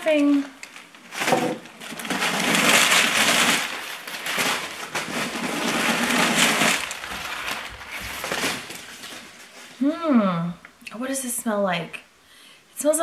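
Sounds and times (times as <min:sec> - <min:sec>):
tissue paper crinkling: 0:00.0 - 0:09.8.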